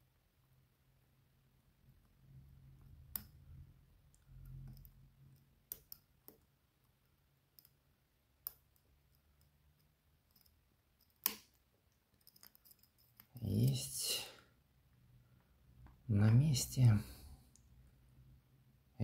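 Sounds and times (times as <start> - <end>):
lock pick metal clicks: 9.8 - 13.3.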